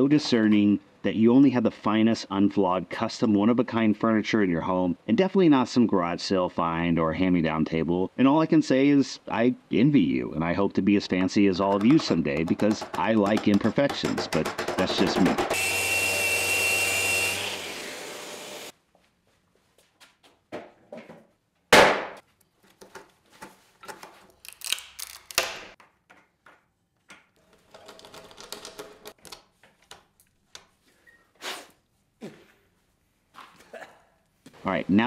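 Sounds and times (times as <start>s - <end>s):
knocks and taps at workbench: 11.1s - 15.5s.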